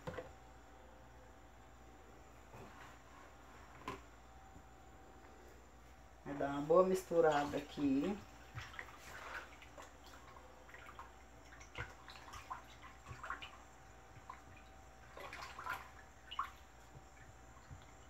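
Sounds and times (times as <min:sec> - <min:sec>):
liquid sloshing and dripping: 0:07.2 - 0:18.0.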